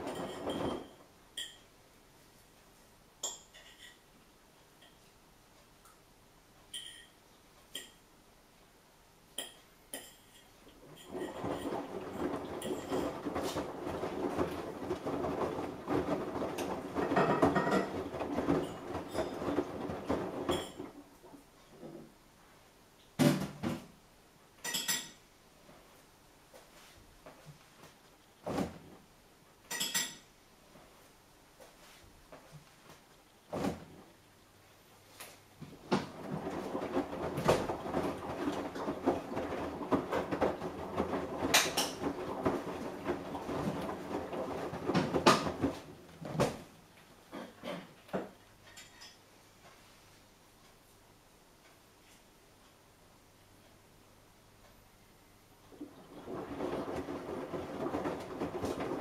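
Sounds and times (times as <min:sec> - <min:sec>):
clothes knocking in drum: 0:00.0 - 0:01.0, 0:11.0 - 0:21.4, 0:35.6 - 0:46.7, 0:55.7 - 0:59.0
washing machine drum tumbling: 0:00.0 - 0:01.5, 0:10.8 - 0:22.1, 0:33.5 - 0:34.1, 0:35.6 - 0:46.9, 0:55.7 - 0:59.0.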